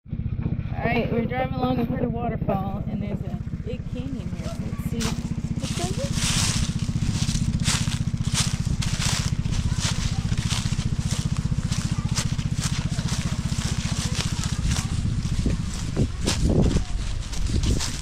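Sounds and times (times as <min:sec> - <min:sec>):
steady low rumble: 0:00.1 - 0:18.0
footsteps crunching dry leaves: 0:03.9 - 0:18.0.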